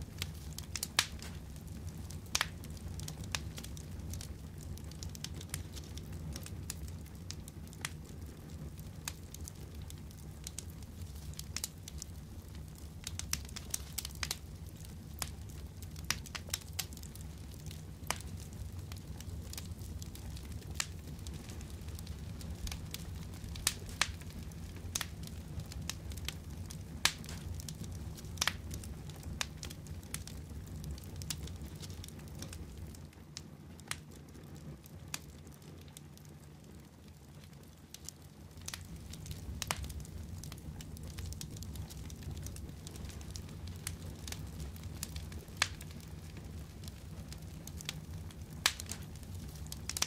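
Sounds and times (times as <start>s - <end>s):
crackles and clicks: 0.1s - 50.0s.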